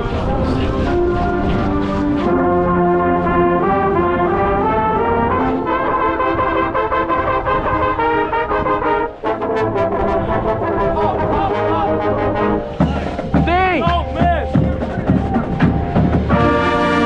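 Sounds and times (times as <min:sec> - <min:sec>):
marching band brass playing: 0:00.2 - 0:17.0
trumpet close to microphone: 0:00.7 - 0:13.2, 0:16.2 - 0:17.0.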